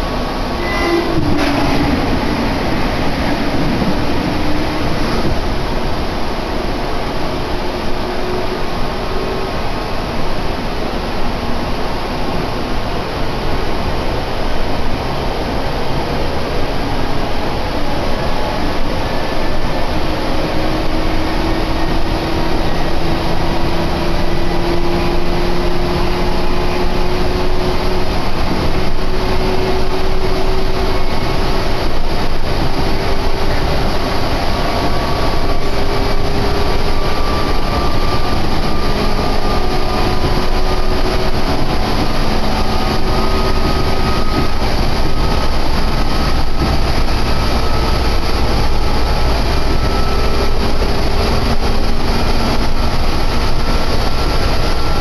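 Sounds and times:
train motor whine: 0.0 - 10.2, 18.3 - 55.0
electric train rumbling: 0.0 - 55.0.

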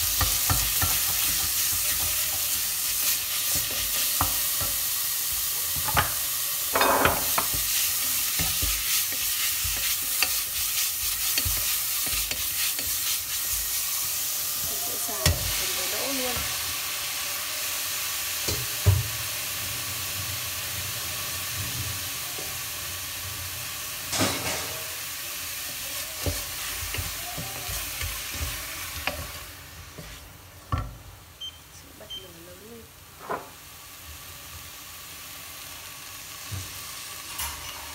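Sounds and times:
beef sizzling in a pot: 0.0 - 37.9
wooden spatula scraping a pot: 6.8 - 14.0, 25.6 - 30.4.

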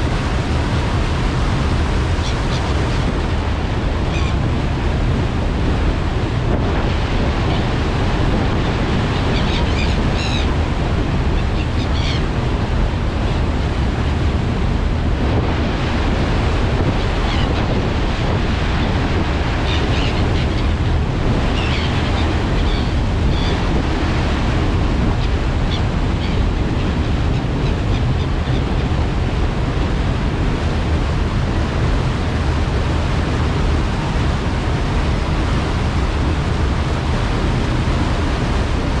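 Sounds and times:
churning ferry wake: 0.0 - 39.0
wind buffeting microphone: 0.0 - 39.0
gull cries: 9.3 - 10.6, 11.4 - 12.3.

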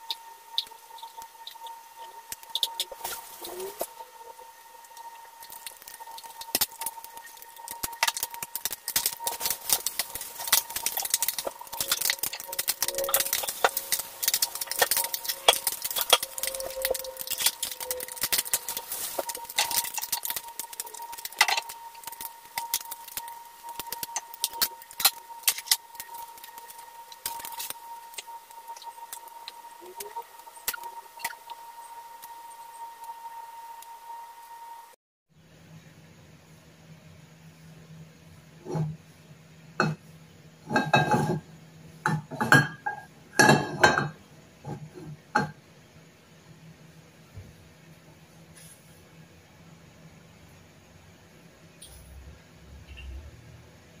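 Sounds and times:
fish sizzling in oil: 0.0 - 34.8
spatula moving fish in pan: 5.0 - 29.2
frying pan clanking on metal grate: 42.1 - 44.2.

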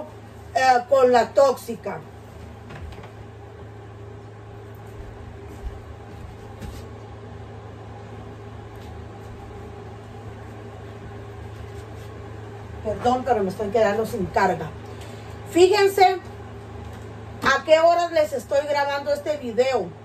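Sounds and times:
low mechanical hum: 0.0 - 20.0
soft knocks and rustles: 4.9 - 7.0.

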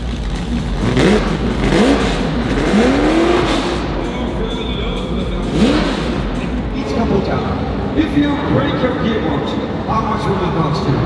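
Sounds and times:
steady din: 0.0 - 8.0
car engine revving: 0.0 - 11.0.

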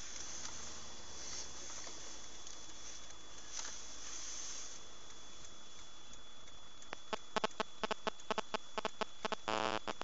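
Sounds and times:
microphone hiss: 0.0 - 10.0
thin high whine: 0.0 - 10.0
sharp clicks: 5.4 - 10.0.

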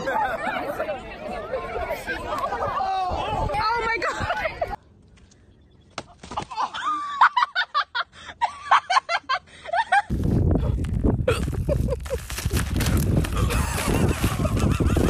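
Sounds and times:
person giggling: 11.2 - 12.3, 13.3 - 15.0.

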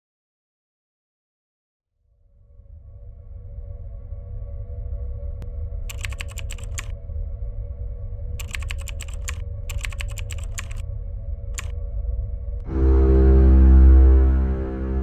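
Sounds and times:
keyboard typing: 5.9 - 6.9, 8.4 - 10.8.

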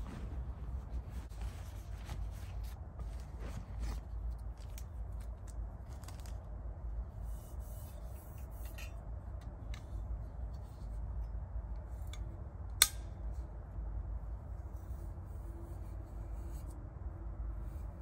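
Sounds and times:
low rumble: 0.0 - 4.1
gear rustling: 0.0 - 6.4.

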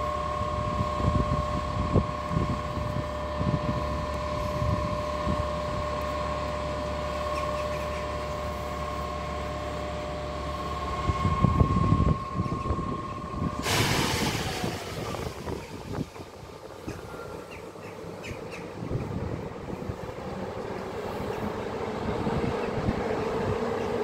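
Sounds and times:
locomotive two-tone whine: 0.0 - 24.0
wind gusts on microphone: 0.4 - 6.0, 10.9 - 17.2, 18.7 - 20.4, 21.0 - 24.0.

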